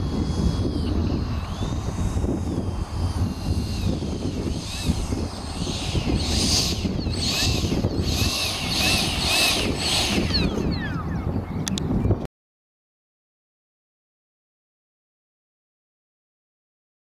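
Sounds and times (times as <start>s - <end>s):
electric ducted fan whining: 0.0s - 12.3s
wind rumble on microphone: 0.0s - 12.3s.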